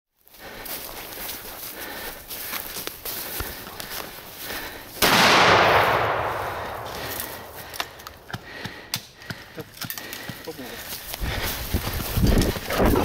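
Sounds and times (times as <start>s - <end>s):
footsteps through dry leaves: 0.2s - 8.2s
brush crackling: 0.2s - 13.0s
loud gunshot with echo: 5.0s - 7.6s.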